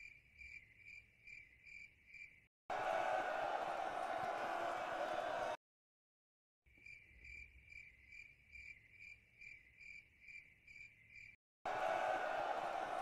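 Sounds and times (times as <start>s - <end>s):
cricket chirping: 0.0s - 2.5s, 6.8s - 11.4s.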